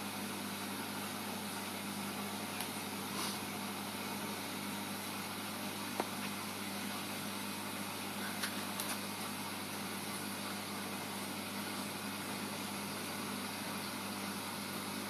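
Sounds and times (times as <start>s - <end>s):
aquarium equipment hum and hiss: 0.0s - 15.0s.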